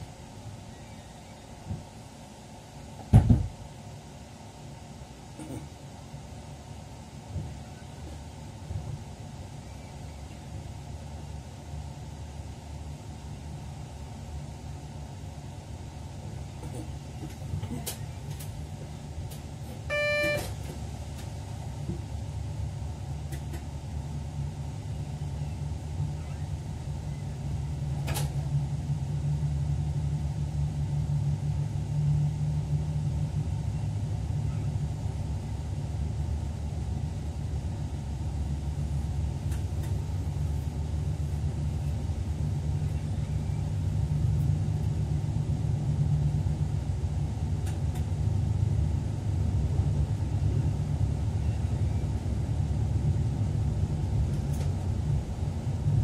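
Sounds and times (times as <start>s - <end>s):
electric train rumble: 0.0s - 56.0s
short beep: 19.9s - 20.6s.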